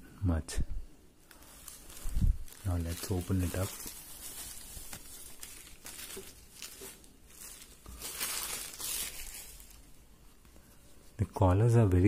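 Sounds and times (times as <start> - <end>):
packing material and fabric rustling: 1.2 - 11.2.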